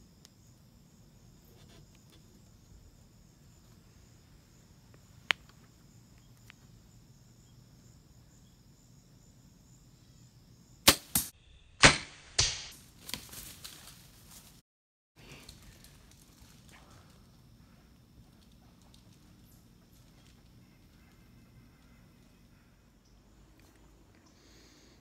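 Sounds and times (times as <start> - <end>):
crickets chirping: 0.0 - 11.8, 15.2 - 25.0
bow release cracks: 10.9 - 13.8
animal crashing through brush: 10.9 - 14.6.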